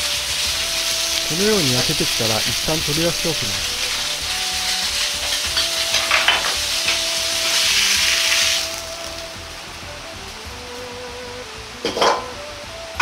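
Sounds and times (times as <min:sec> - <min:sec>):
meat sizzling in oil: 0:00.0 - 0:10.4
soft background music: 0:00.0 - 0:13.0.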